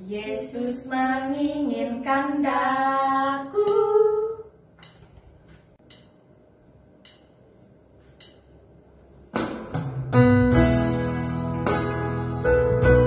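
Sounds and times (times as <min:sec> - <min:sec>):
instrumental song accompaniment: 0:09.4 - 0:13.0.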